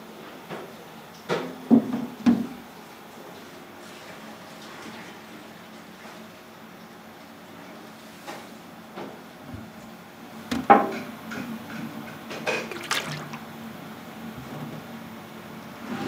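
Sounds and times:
liquid splashing and dripping: 0:12.5 - 0:13.5.

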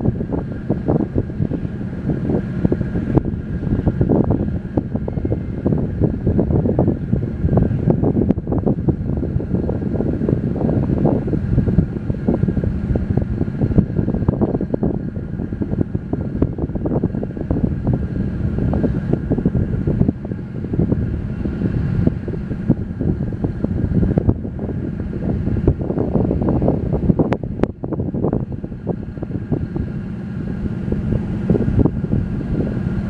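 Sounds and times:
faint high whine: 0:00.0 - 0:09.2
wind buffeting microphone: 0:00.0 - 0:33.0.

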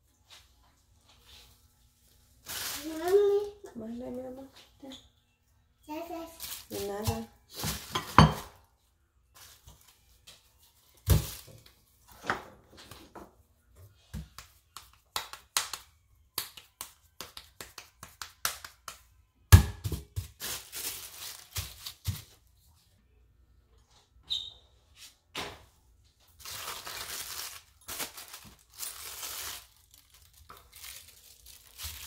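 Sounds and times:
plastic sheets crinkling: 0:02.4 - 0:04.2, 0:06.3 - 0:07.9, 0:20.2 - 0:22.4, 0:26.3 - 0:32.0.

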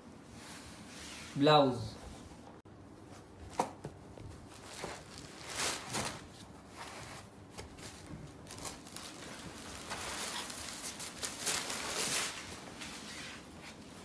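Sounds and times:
cloth rustling: 0:04.3 - 0:14.0.

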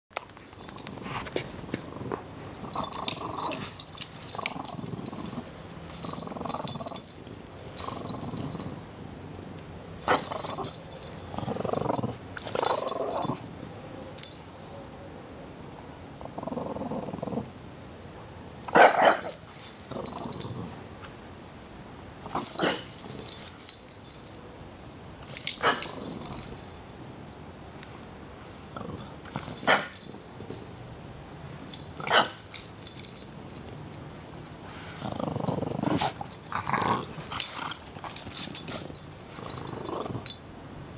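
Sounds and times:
dogs growling in play: 0:00.7 - 0:09.0, 0:10.0 - 0:13.5, 0:16.1 - 0:17.6, 0:18.7 - 0:20.9, 0:22.2 - 0:23.8, 0:25.3 - 0:27.1, 0:28.7 - 0:30.8, 0:31.6 - 0:33.6, 0:34.4 - 0:40.4.

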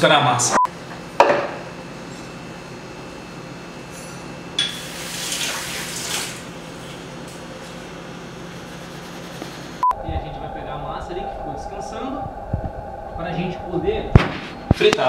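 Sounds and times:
low hum: 0:07.7 - 0:15.0.

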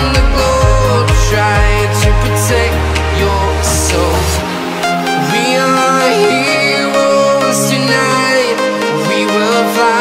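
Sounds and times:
kick drum beat: 0:00.0 - 0:02.7
pop electronic music: 0:00.0 - 0:10.0.

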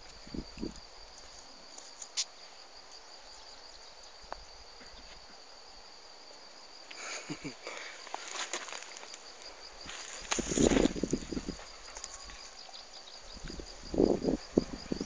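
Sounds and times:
insect trilling: 0:06.7 - 0:15.0.

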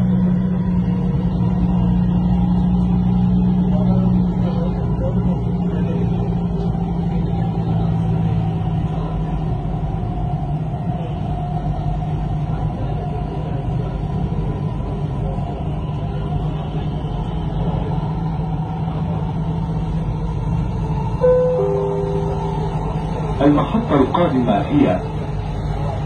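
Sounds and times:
train hum: 0:00.0 - 0:26.0
train rumbling: 0:00.0 - 0:26.0.

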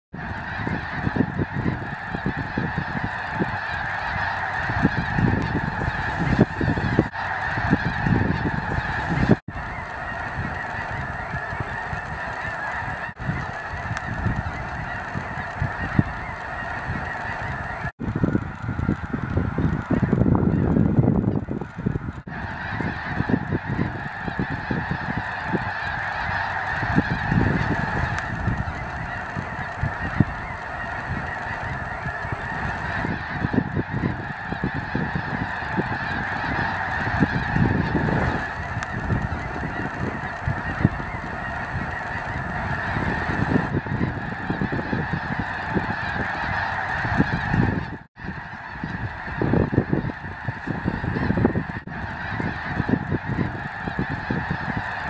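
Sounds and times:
geese honking: 0:00.2 - 0:17.9, 0:22.4 - 0:47.9
wind rumble on microphone: 0:04.6 - 0:09.7, 0:18.0 - 0:25.7, 0:32.4 - 0:55.0.

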